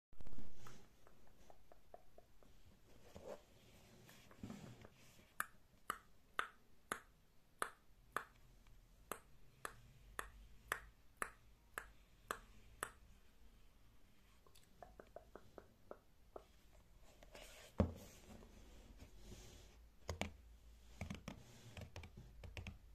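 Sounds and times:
fingernails tapping on notebook: 20.0s - 20.4s, 21.0s - 22.8s.

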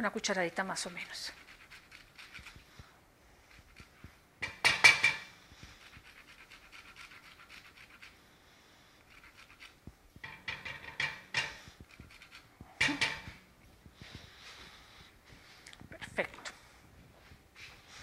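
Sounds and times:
zest grating scratches: 0.8s - 2.8s, 3.4s - 4.2s, 5.6s - 8.3s, 9.0s - 9.9s, 10.5s - 13.3s.

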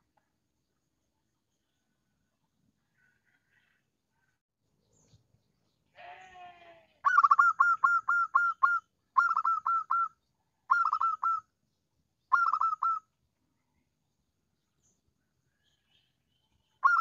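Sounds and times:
dove cooing: 7.0s - 10.1s, 10.7s - 11.4s, 12.3s - 13.0s.

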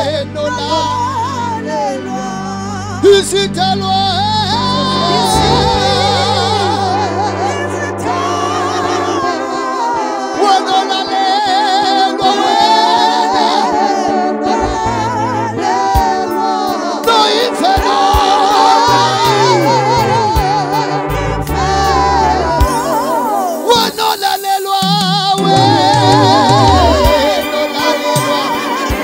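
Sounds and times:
gospel singing over a pa: 0.0s - 29.0s
held keyboard bass notes: 2.0s - 9.2s, 14.5s - 16.4s, 24.8s - 29.0s
sharp percussion hits: 23.8s - 27.4s.

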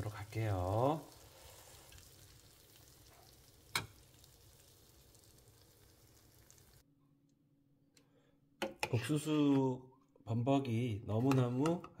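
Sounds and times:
food sizzling faintly in pan: 0.0s - 6.8s.

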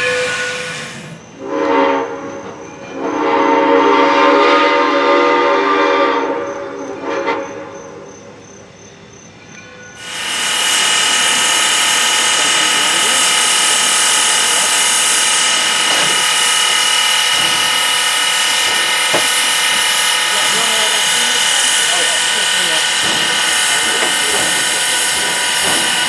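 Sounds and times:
locomotive whistle chord: 10.0s - 26.0s
steam venting hiss: 10.0s - 26.0s.

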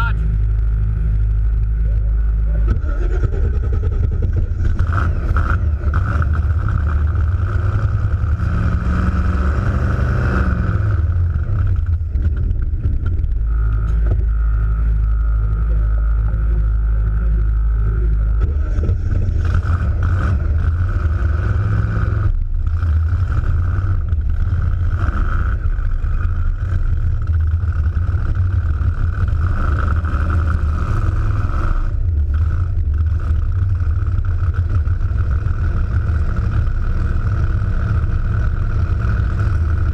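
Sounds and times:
car engine running hard: 0.0s - 39.9s
supercharger whine: 0.0s - 39.9s.

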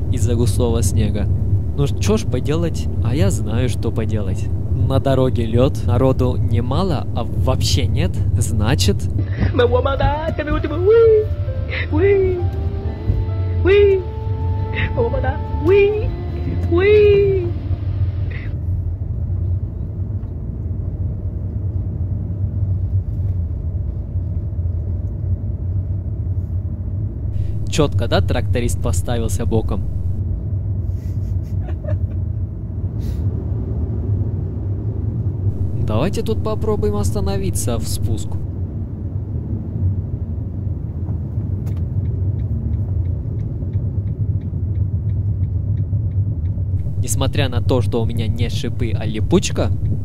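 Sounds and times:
light regular ticking: 0.0s - 9.2s, 27.4s - 30.2s, 35.5s - 38.4s, 43.4s - 50.0s
car cabin rumble: 0.0s - 11.3s, 27.4s - 30.2s, 35.5s - 38.4s, 46.8s - 50.0s
car engine and tyre rumble: 0.0s - 30.9s, 32.0s - 50.0s.

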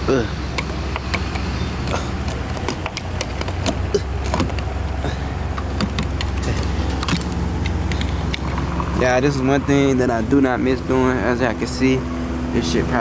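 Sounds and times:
fuel pump humming: 0.0s - 13.0s
fuel nozzle clicks: 0.5s - 8.9s.

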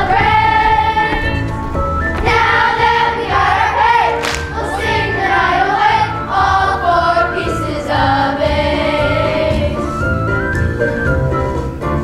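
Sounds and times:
children's choir singing: 0.0s - 1.5s, 2.2s - 10.1s
instrumental accompaniment with bass beat: 8.0s - 12.0s.

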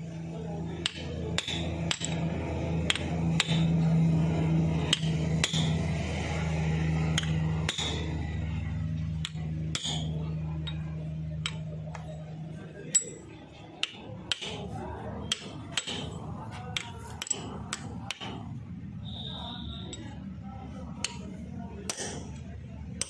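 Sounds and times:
steady low hum: 0.0s - 23.0s
hammer tapping metal: 0.8s - 6.1s, 6.9s - 12.3s, 12.9s - 18.6s, 21.0s - 23.0s.

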